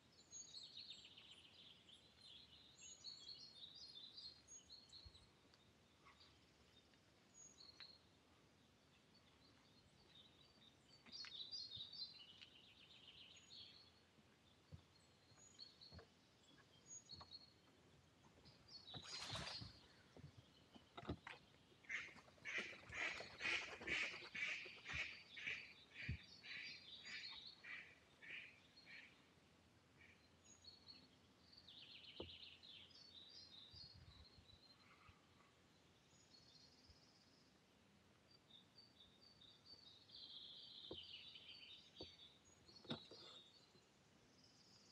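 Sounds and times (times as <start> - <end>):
small birds chirping: 0.0 - 44.9
loud repeated bird call notes: 21.9 - 29.2.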